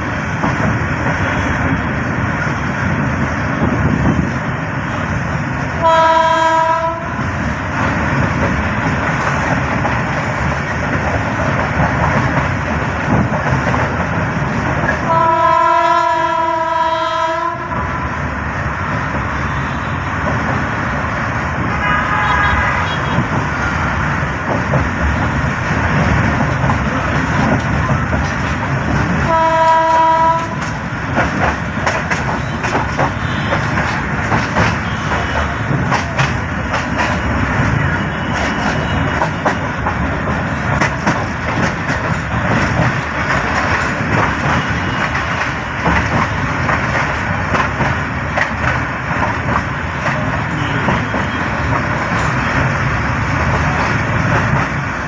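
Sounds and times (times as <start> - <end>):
train wheels and carriage rumble: 0.0 - 55.0
train horn: 5.8 - 7.3, 15.0 - 17.8, 21.7 - 23.4, 29.2 - 30.7, 32.4 - 33.7, 50.5 - 51.5.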